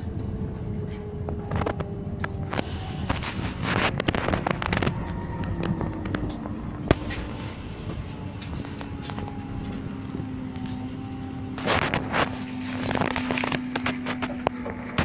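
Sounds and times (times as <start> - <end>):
bus running noise with whine: 0.0 - 15.0.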